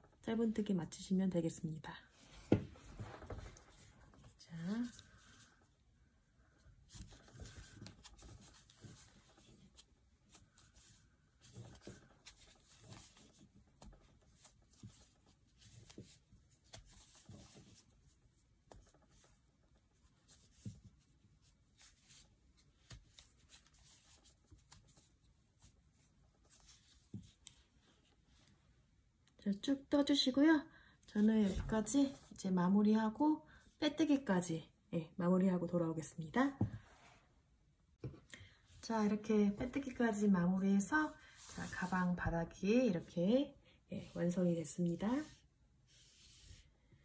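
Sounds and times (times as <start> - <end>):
yarn rustling: 2.2 - 28.7.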